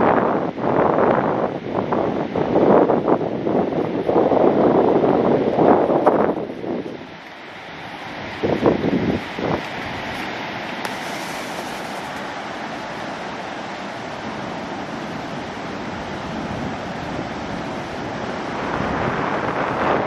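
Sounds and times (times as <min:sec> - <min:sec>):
strong wind blowing across microphone: 0:00.0 - 0:20.0.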